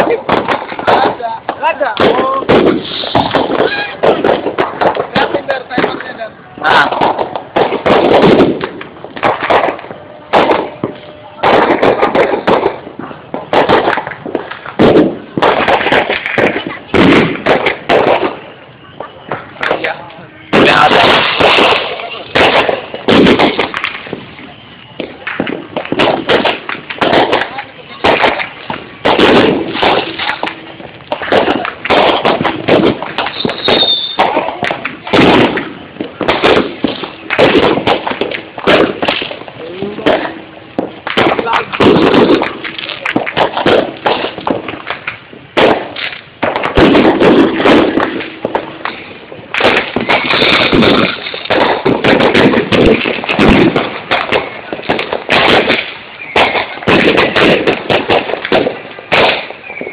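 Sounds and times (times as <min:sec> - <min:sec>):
fireworks bursting: 0:00.0 - 0:59.9
high whistle: 0:33.3 - 0:34.2.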